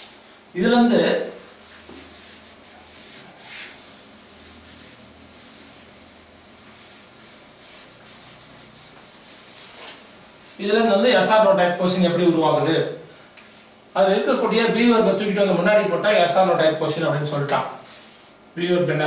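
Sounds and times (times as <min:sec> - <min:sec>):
duster rubbing on whiteboard: 0:01.4 - 0:10.6.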